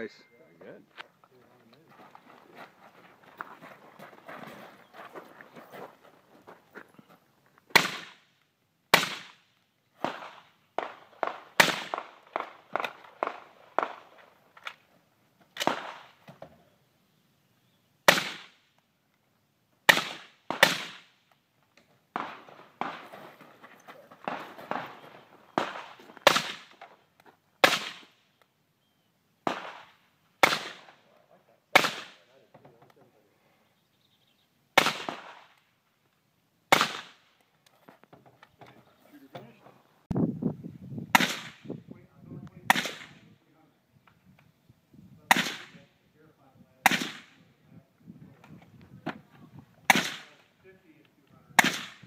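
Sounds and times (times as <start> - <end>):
rifle shots: 8.9 - 9.4, 10.0 - 14.1, 15.6 - 16.2, 18.1 - 18.6, 19.9 - 21.1, 22.1 - 23.2, 24.2 - 26.8, 27.6 - 28.2, 29.4 - 31.0, 31.7 - 32.3, 34.8 - 35.6, 36.7 - 37.3, 41.1 - 41.7, 42.7 - 43.3, 45.3 - 45.8, 46.8 - 47.4, 49.9 - 50.4, 51.6 - 52.0.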